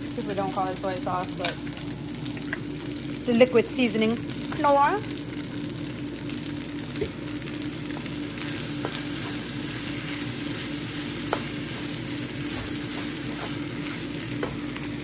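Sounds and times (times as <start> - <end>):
rice sizzling in a skillet: 0.0 - 15.0
wooden spoon knocking a pan: 8.8 - 9.4, 11.2 - 11.6, 14.4 - 14.7.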